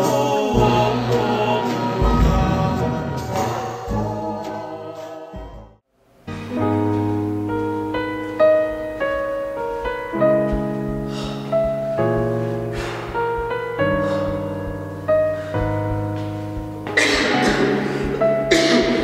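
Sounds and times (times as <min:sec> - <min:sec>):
slow piano music: 0:06.2 - 0:19.0.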